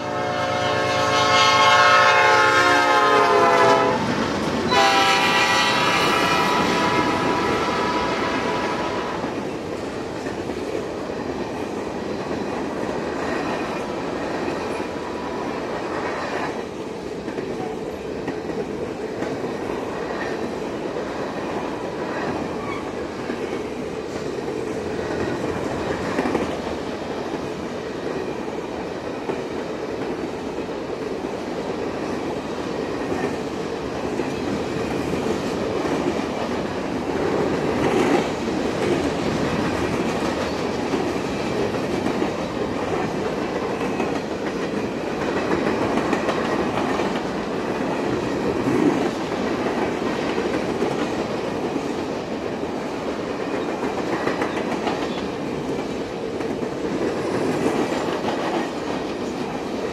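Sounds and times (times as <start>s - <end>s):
train horn: 0.0s - 4.1s, 4.7s - 9.3s
train rumble: 0.0s - 59.9s.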